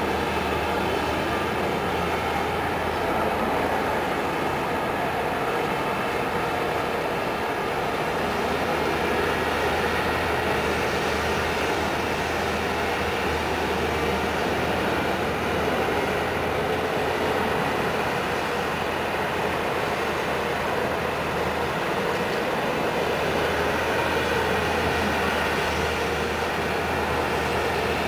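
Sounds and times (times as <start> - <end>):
diesel engine rumbling: 0.0 - 28.0.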